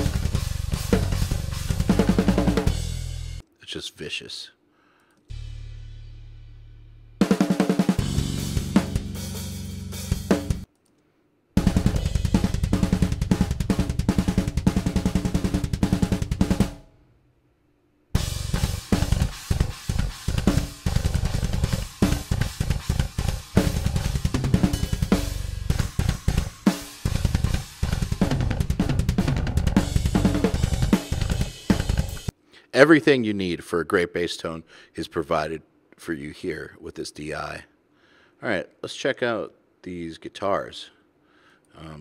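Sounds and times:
fast metal drumming: 0.0 - 3.1, 11.6 - 16.8, 18.2 - 32.3
bass guitar: 0.0 - 3.4, 8.0 - 10.6, 11.6 - 16.8, 18.2 - 32.3.

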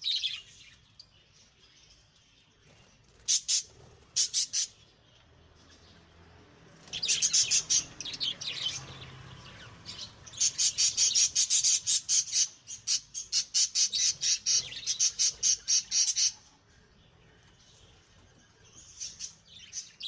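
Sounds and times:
budgerigars chirping and squawking: 2.7 - 5.0, 6.9 - 20.0.

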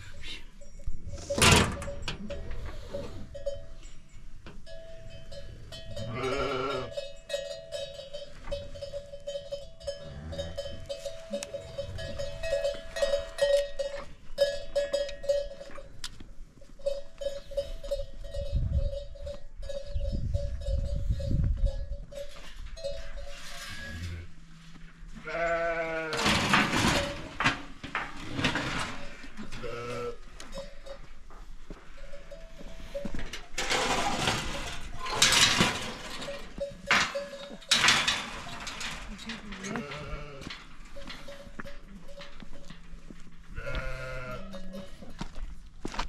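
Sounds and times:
animal bells ringing: 0.0 - 16.0, 16.6 - 23.9, 28.9 - 45.6
animal bleating: 6.0 - 7.0, 25.2 - 26.4, 29.4 - 30.3, 39.4 - 40.6, 43.6 - 45.0.

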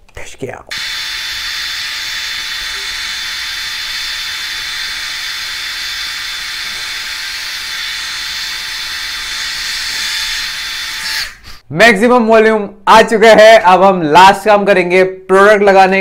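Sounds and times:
hair dryer blowing air: 0.8 - 11.4.

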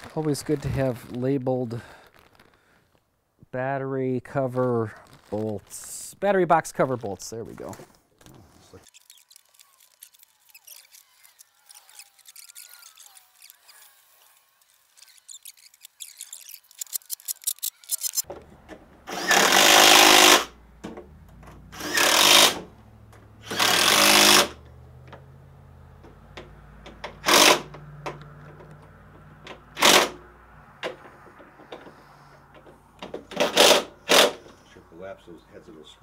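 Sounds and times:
impact wrench driving bolts: 33.0 - 34.4.

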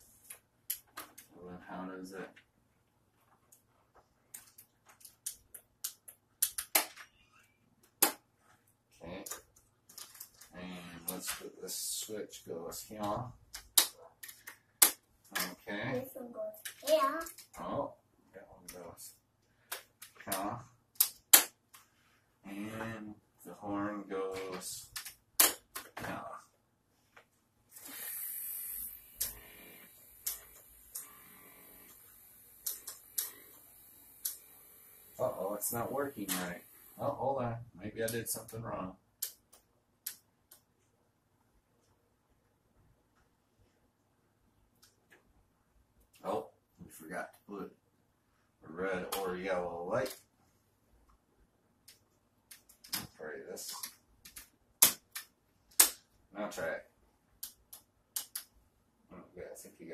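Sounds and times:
short hiss: 27.7 - 29.3.

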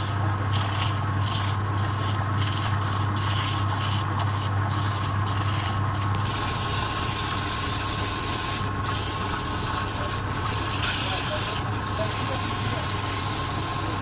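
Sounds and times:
lathe motor hum: 0.0 - 14.0
sandpaper sanding hiss: 0.6 - 14.0.

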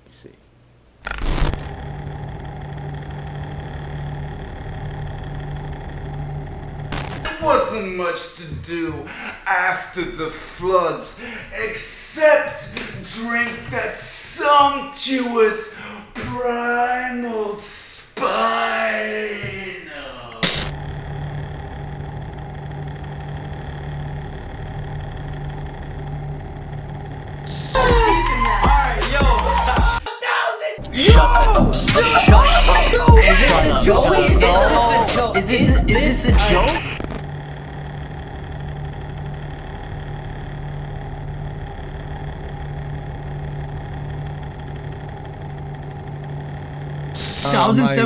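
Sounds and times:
machine humming with deep rumble: 1.0 - 7.3, 20.4 - 30.0, 30.8 - 48.0.

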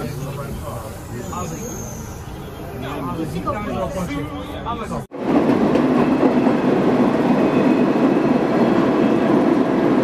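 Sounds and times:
subway car running on rails: 5.1 - 10.0.

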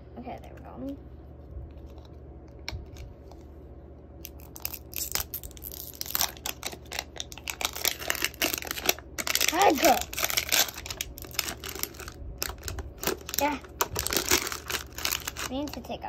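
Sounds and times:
plastic wrapper crinkling and tearing: 4.2 - 15.9.

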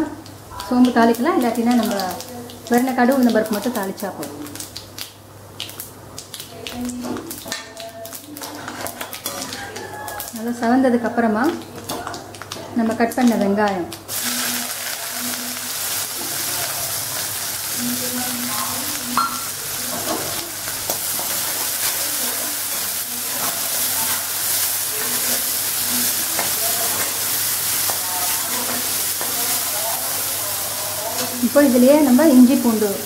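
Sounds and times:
onions sizzling in oil: 0.0 - 33.0
metal spoon scraping pan: 8.4 - 9.9.

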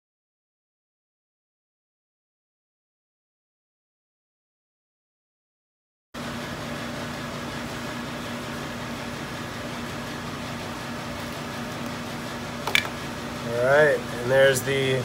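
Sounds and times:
ventilation fan hum: 6.2 - 15.0.

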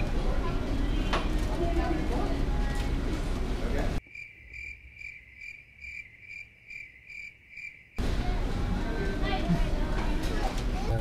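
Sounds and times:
restaurant background noise: 0.0 - 4.0, 8.0 - 11.0
crickets chirping: 4.0 - 8.0.

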